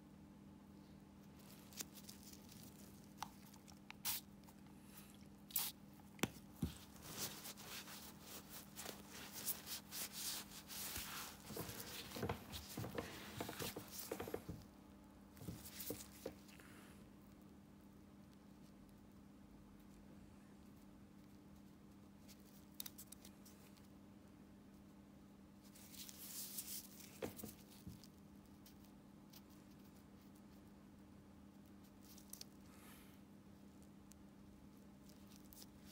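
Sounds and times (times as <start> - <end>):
faint steady hum: 0.0 - 35.9
plastic gloves rustling: 1.2 - 14.7, 25.7 - 28.8
towel wiping: 6.6 - 14.5.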